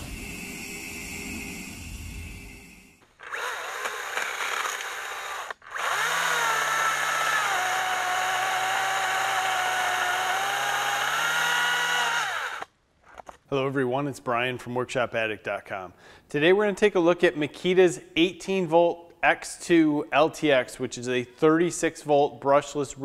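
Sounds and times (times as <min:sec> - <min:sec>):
electric chainsaw cutting wood: 0:03.0 - 0:12.7.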